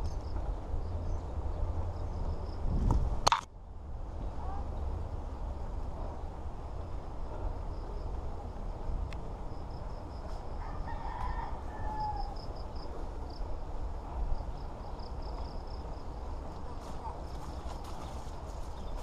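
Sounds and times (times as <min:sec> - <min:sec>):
steady low rumble: 0:00.0 - 0:19.0
rooster crowing: 0:10.5 - 0:12.7.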